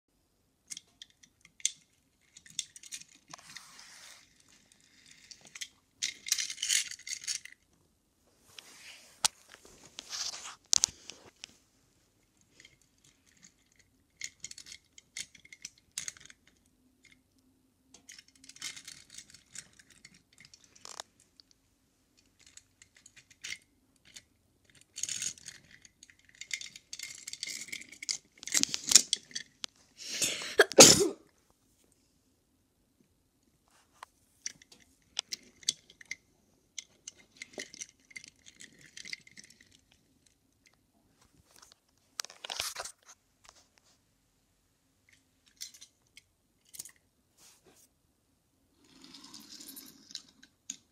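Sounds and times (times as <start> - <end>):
rubbing against microphone: 3.4 - 4.5, 8.4 - 11.3.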